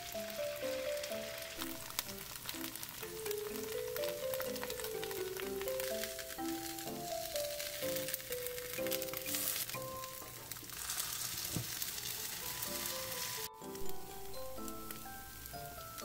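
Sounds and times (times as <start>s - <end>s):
light background music: 0.0s - 16.0s
pancakes sizzling in hot oil: 0.0s - 16.0s
spatula flipping pancakes: 1.3s - 13.6s.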